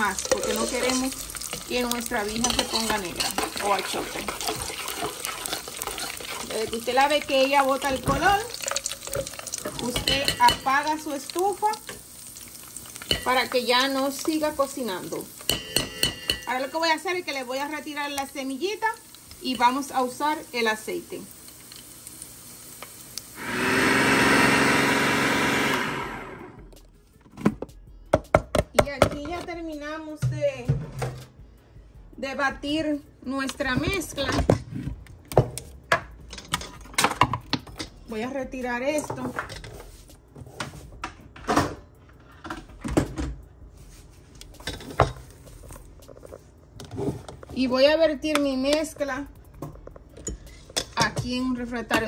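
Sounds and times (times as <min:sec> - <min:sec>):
kitchenware knocks and clunks: 0:15.5 - 0:16.5, 0:27.3 - 0:29.5, 0:30.2 - 0:31.3, 0:41.0 - 0:41.9, 0:42.5 - 0:43.4
electric blender motor: 0:23.4 - 0:26.7.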